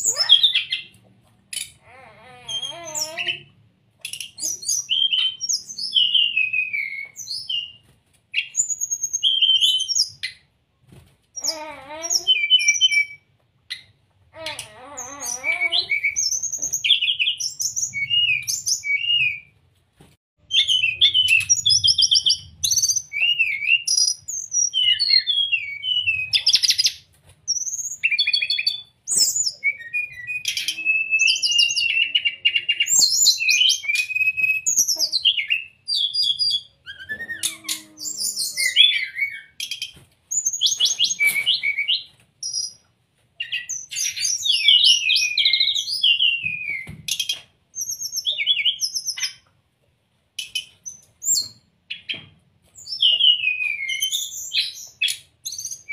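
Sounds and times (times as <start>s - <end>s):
bird singing chirps and trills: 13.8s - 19.4s, 27.6s - 42.8s.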